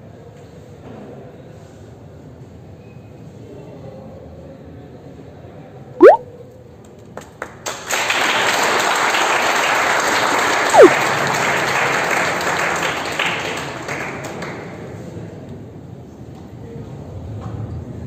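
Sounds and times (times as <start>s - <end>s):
audience applauding: 7.7s - 14.5s.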